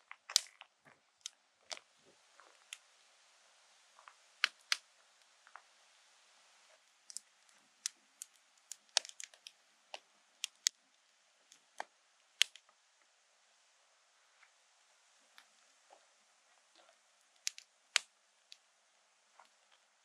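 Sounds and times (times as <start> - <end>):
wood fire crackling and popping: 0.0 - 3.0, 4.0 - 5.7, 6.7 - 10.8, 11.4 - 12.8, 16.7 - 18.7
faint hiss: 0.0 - 20.0.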